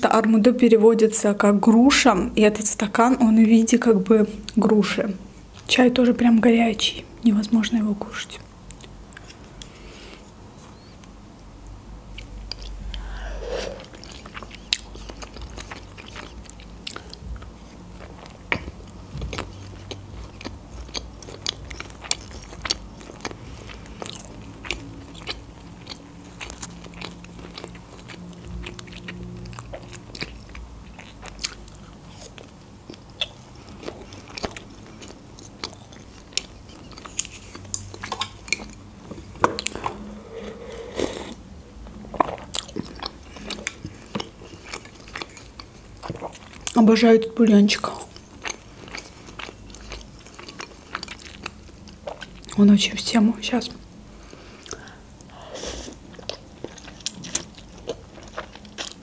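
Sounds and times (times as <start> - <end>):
chewing and biting food: 12.1 - 46.8, 47.8 - 52.6, 54.5 - 59.0.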